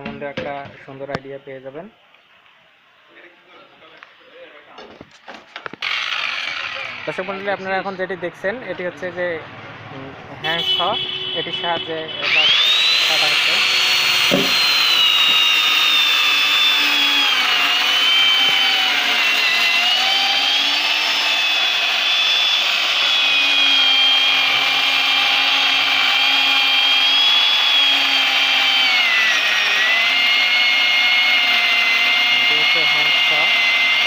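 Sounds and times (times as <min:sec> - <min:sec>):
electric chainsaw cutting log: 0:05.2 - 0:07.8, 0:12.2 - 0:34.0.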